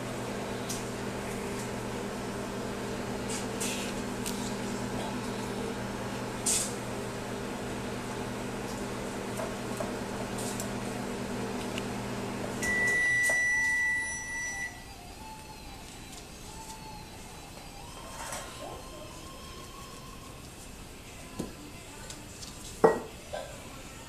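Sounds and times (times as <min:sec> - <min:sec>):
microwave oven humming: 0:00.0 - 0:20.4
long high-pitched beep: 0:12.6 - 0:14.9.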